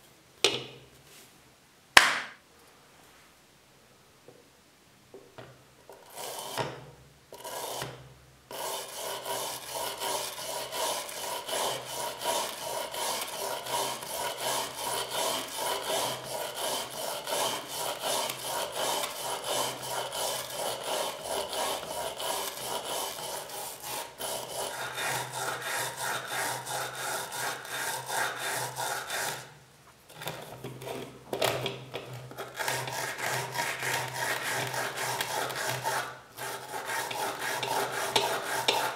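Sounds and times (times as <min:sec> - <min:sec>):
wire brush scrubbing metal: 0:08.5 - 0:29.5, 0:32.4 - 0:38.9.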